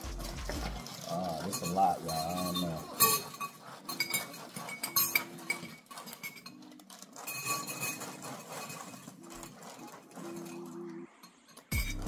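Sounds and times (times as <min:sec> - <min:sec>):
metal spoon clinking glass bowl: 0:01.2 - 0:09.1.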